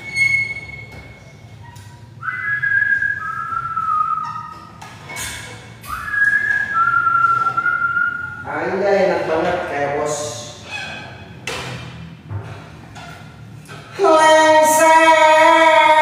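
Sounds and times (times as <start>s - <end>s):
person whistling: 2.2s - 4.7s, 5.8s - 8.4s.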